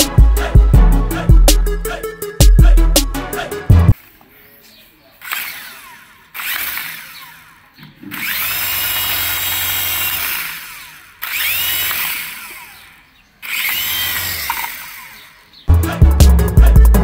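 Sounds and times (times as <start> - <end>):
toy helicopter motors whirring: 5.1 - 15.6.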